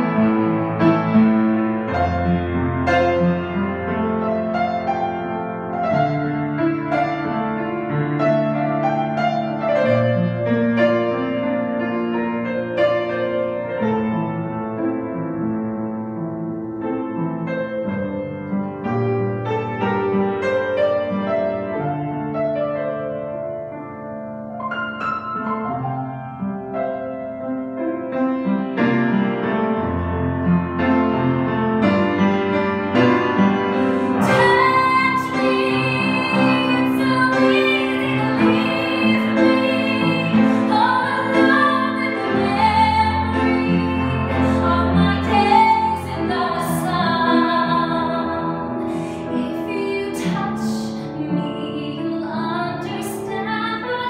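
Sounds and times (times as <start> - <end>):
piano accompaniment: 0.0 - 54.0
woman singing a ballad: 33.8 - 54.0.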